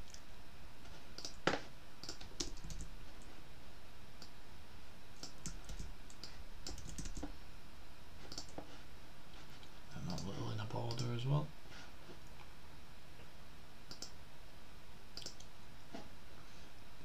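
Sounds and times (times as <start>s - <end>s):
computer keyboard key clicks: 5.2s - 7.3s.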